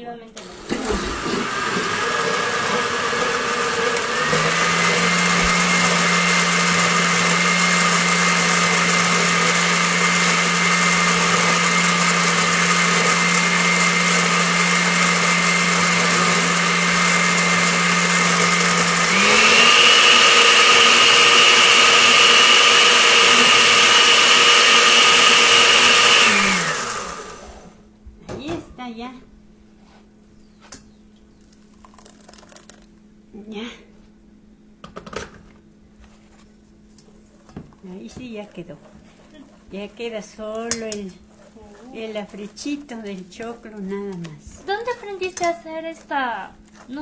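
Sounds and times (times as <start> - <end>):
blender motor running: 0.4 - 27.8.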